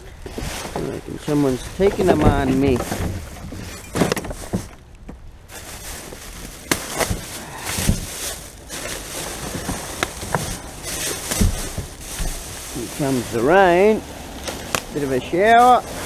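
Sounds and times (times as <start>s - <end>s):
rubbish bags rustling: 0.0s - 16.0s
items knocking and clicking: 1.8s - 5.2s, 6.6s - 12.5s.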